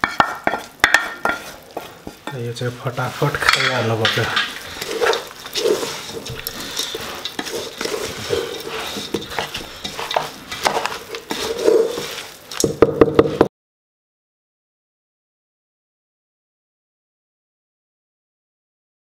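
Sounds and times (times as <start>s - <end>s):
spatula stirring puffed rice in pot: 0.0s - 13.5s
knocks against pot: 12.6s - 13.5s.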